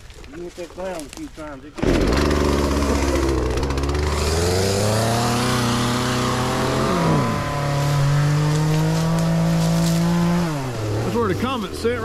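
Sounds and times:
bulldozer diesel engine running: 1.9s - 7.5s.

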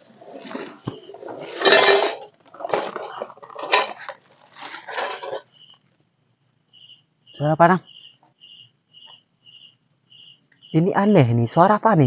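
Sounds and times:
camping gear clattering and rustling: 0.0s - 5.6s.

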